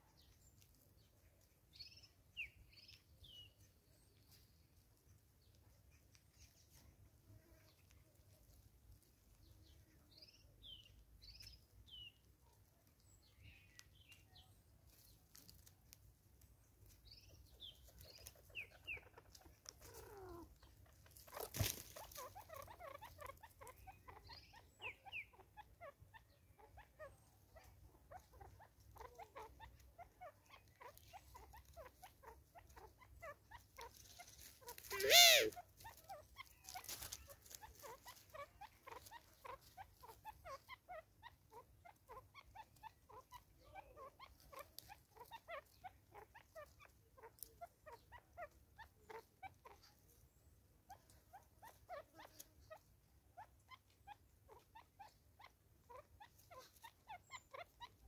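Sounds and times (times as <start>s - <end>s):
birds chirping: 0.0s - 58.0s
loud animal call: 34.9s - 35.6s.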